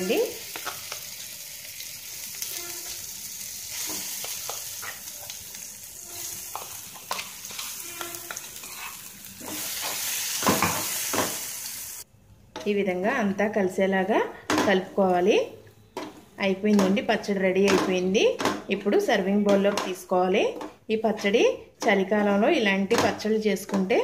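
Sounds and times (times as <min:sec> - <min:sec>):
hot oil sizzling in a pan: 0:00.0 - 0:12.1
chutney stirred and scraped: 0:03.7 - 0:11.1.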